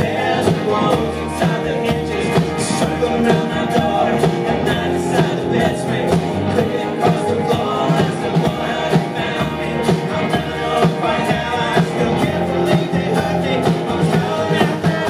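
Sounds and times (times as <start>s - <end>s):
acoustic guitar: 0.0s - 15.0s
electric guitar: 0.0s - 15.0s
upright bass: 0.0s - 15.0s.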